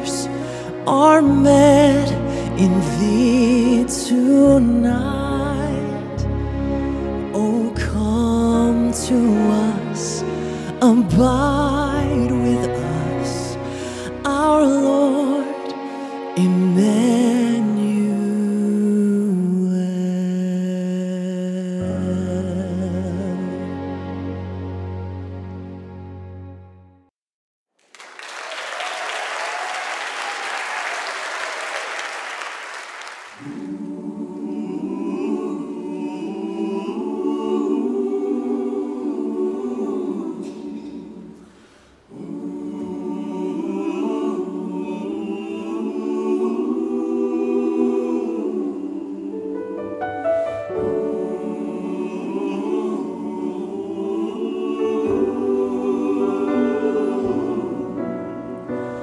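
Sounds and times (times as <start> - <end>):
mixed choir singing: 0.0 - 20.6, 33.3 - 59.0
audience applause: 27.8 - 33.8.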